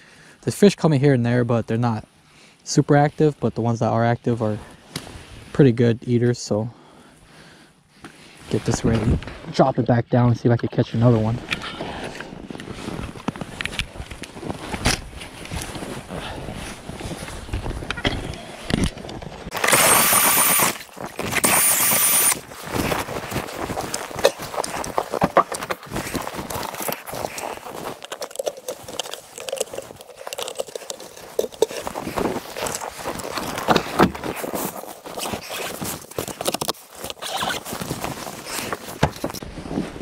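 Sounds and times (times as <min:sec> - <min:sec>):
fabric rustling against microphone: 0:11.1 - 0:19.5, 0:20.8 - 0:21.4, 0:22.3 - 0:40.0
electric drill motor whine: 0:19.5 - 0:22.4.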